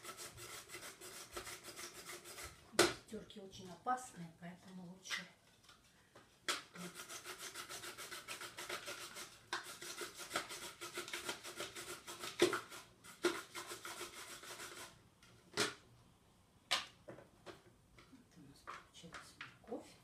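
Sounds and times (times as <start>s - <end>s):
carrot rasping on grater: 0.0s - 2.6s, 6.7s - 15.0s.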